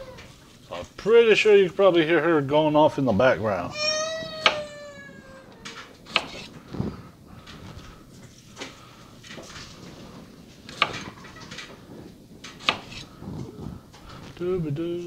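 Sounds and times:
handling and rustling: 0:03.8 - 0:15.0.

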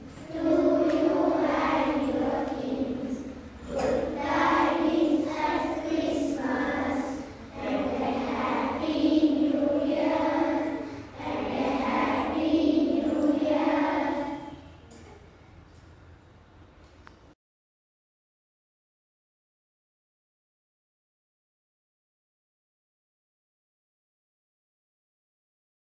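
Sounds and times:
children singing in unison: 0:00.0 - 0:14.6.

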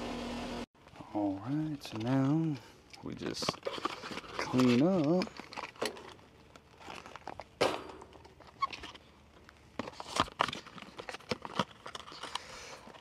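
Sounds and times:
cardboard boxes rustling: 0:03.1 - 0:13.0.

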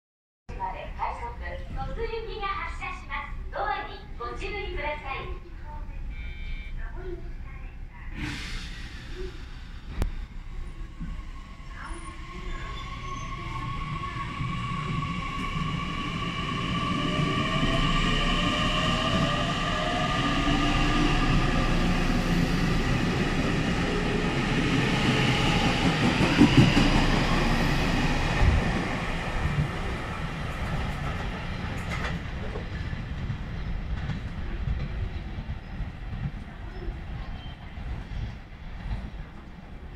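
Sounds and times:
train wheels on rails: 0:09.8 - 0:39.6.

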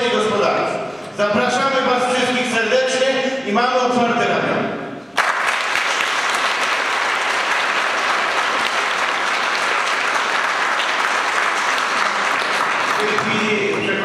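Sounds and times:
audience applauding: 0:05.2 - 0:14.0.

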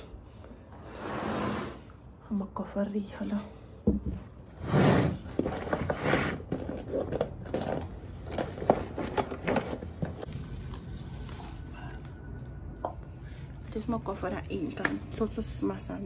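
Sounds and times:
rustling of belongings: 0:04.1 - 0:12.8
clicks and knocks of handled items: 0:05.4 - 0:10.3.

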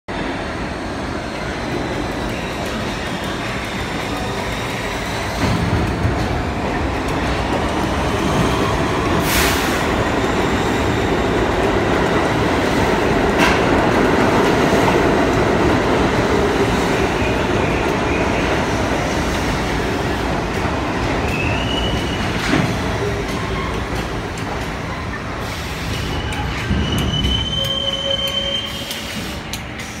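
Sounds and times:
subway train running past: 0:00.1 - 0:30.0
high brake squeals: 0:25.4 - 0:29.4.

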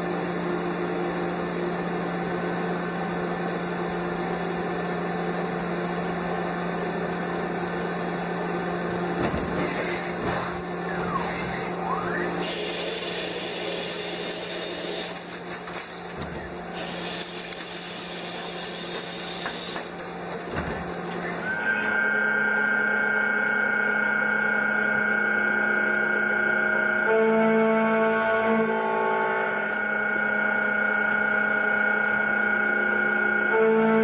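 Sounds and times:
lathe machine hum: 0:05.4 - 0:33.6
tool cutting metal: 0:08.9 - 0:21.7
falling then rising whine: 0:09.4 - 0:14.4.

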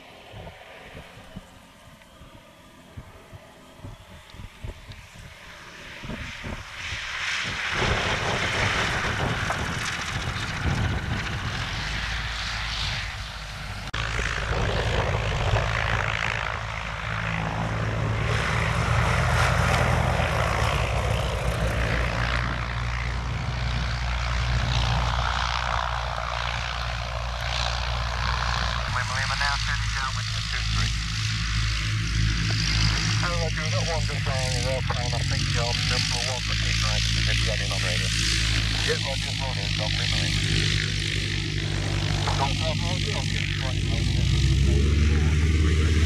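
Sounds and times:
propeller plane engine: 0:00.0 - 0:46.0
wind buffeting microphone: 0:02.9 - 0:29.6.

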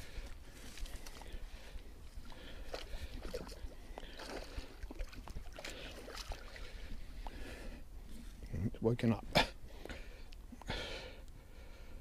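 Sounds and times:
water sloshing and splashing: 0:00.0 - 0:07.6.

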